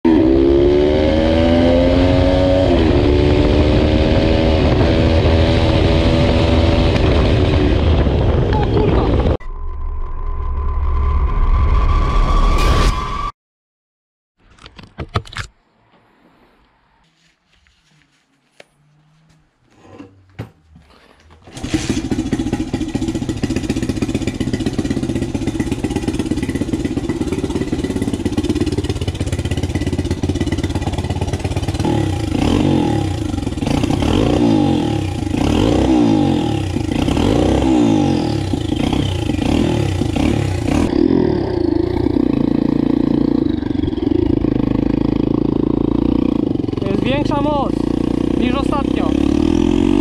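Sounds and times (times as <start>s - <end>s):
motorcycle engine revving: 0.0s - 9.4s, 21.4s - 50.0s.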